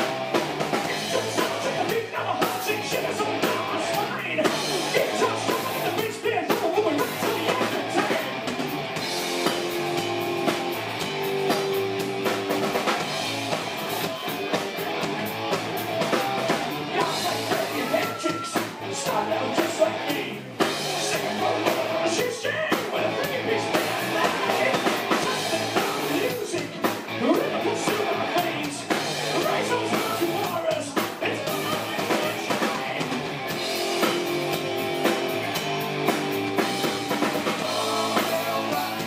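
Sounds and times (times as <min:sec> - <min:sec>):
drum kit: 0:00.0 - 0:39.0
electric guitars: 0:00.0 - 0:39.0
person singing: 0:00.8 - 0:08.5, 0:16.9 - 0:33.2, 0:36.8 - 0:39.0.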